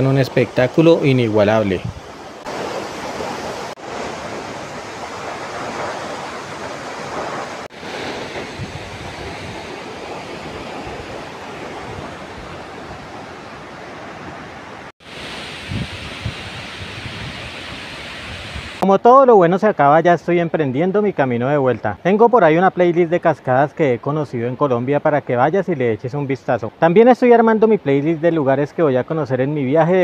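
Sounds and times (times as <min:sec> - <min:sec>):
waterfall rushing onto rocks: 0:15.0 - 0:18.8.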